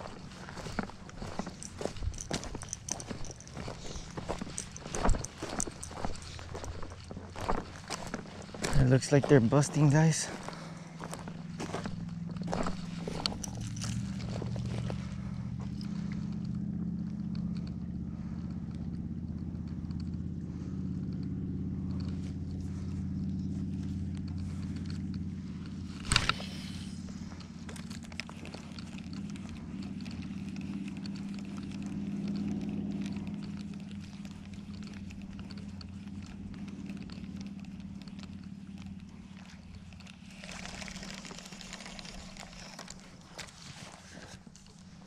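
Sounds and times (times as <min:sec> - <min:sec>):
low engine drone: 0:00.0 - 0:45.0
fishing rod click: 0:24.2 - 0:43.6.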